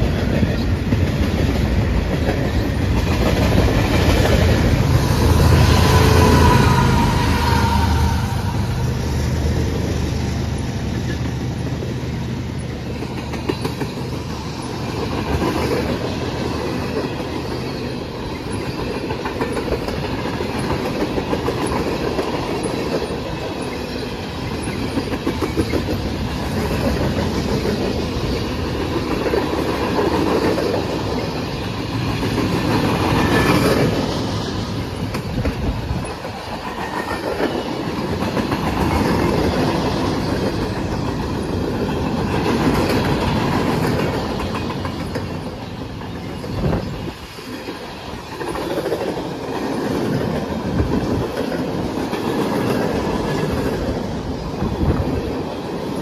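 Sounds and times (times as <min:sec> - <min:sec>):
train wheels clicking over rail joints: 0:00.0 - 0:08.9, 0:09.5 - 0:56.0.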